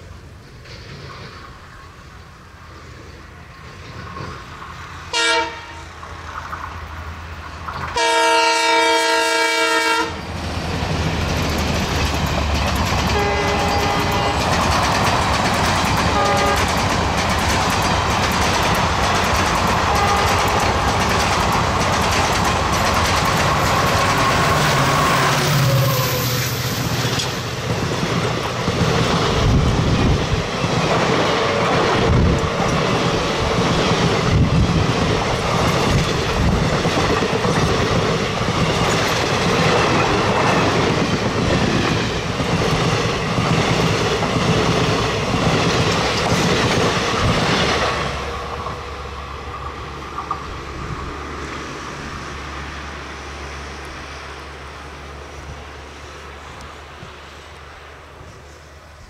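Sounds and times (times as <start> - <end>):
train rushing past: 0.0 - 59.0
wheels clattering over rail joints: 10.5 - 26.1, 26.8 - 48.8.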